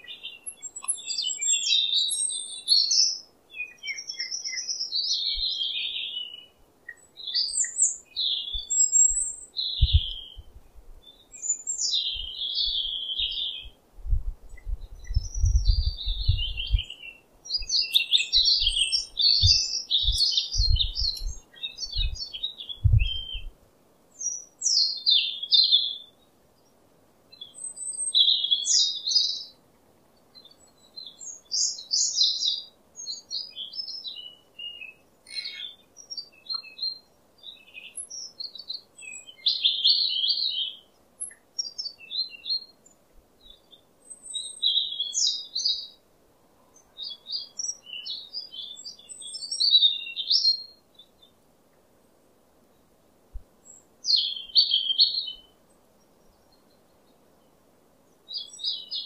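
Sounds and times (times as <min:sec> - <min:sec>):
bird singing whistled phrases: 0:00.0 - 0:10.5, 0:15.0 - 0:23.5, 0:31.0 - 0:42.7, 0:54.1 - 0:55.5.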